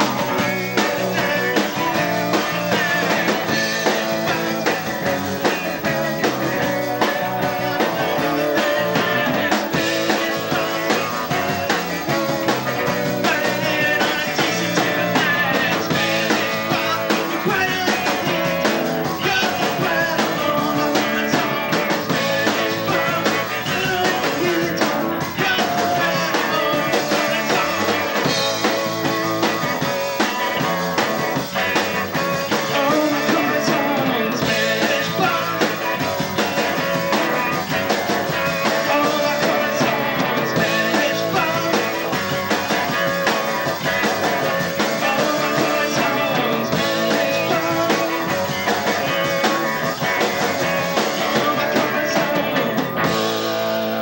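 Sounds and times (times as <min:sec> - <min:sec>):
bass guitar: 0:00.0 - 0:54.0
drum kit: 0:00.0 - 0:54.0
electric guitars: 0:00.0 - 0:54.0.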